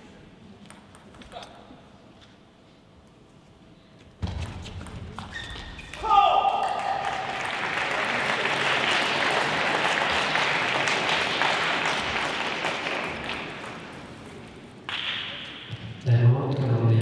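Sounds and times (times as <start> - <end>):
audience applauding: 6.6 - 15.1.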